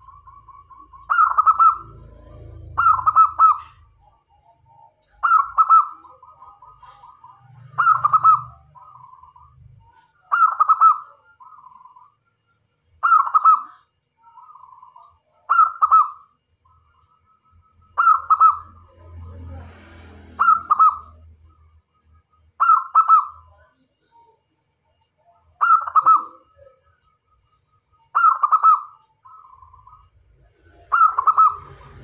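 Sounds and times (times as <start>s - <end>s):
dove cooing: 0.0s - 12.0s, 13.0s - 16.2s, 18.0s - 19.3s, 20.3s - 21.2s, 25.6s - 26.8s, 28.2s - 30.0s, 30.6s - 32.0s.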